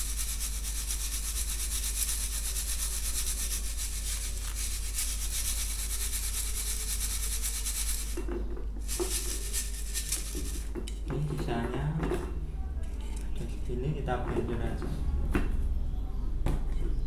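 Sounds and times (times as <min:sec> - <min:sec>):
powder rubbed through metal sieve: 0:00.0 - 0:10.8.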